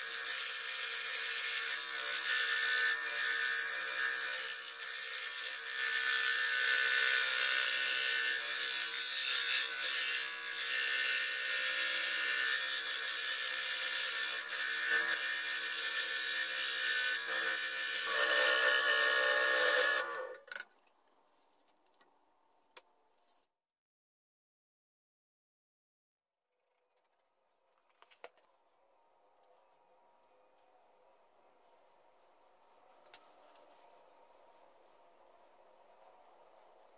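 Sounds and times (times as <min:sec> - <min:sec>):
scroll saw cutting plywood: 0:00.0 - 0:20.4.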